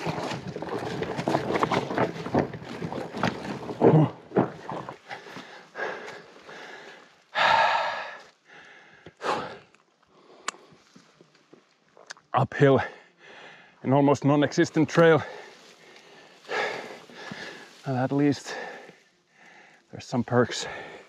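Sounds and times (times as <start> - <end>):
bike rattling and knocking: 0.0 - 5.5
person breathing hard: 5.0 - 10.7, 12.9 - 13.8, 15.2 - 17.8, 18.4 - 19.9, 20.6 - 21.0.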